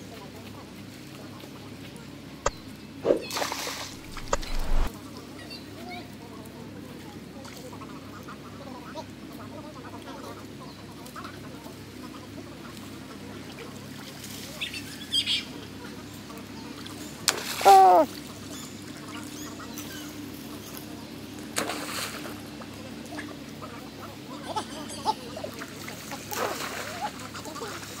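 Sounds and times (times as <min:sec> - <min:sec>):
faint short animal calls: 0:17.6 - 0:18.1.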